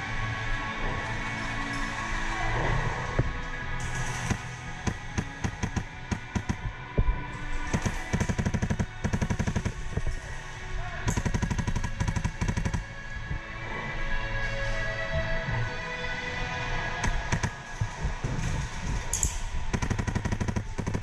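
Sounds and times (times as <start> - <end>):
background music: 0.0 - 21.0
airsoft rifle firing: 4.2 - 6.8, 7.7 - 10.0, 11.0 - 12.9, 17.0 - 17.6, 19.1 - 21.0.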